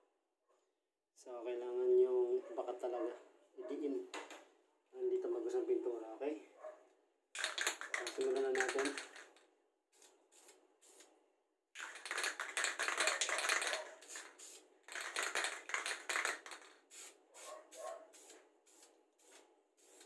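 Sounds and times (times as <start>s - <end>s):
spray paint hissing: 7.4s - 9.3s, 9.9s - 11.1s, 11.8s - 20.0s
spray can ball rattling: 7.4s - 11.1s, 11.8s - 20.0s.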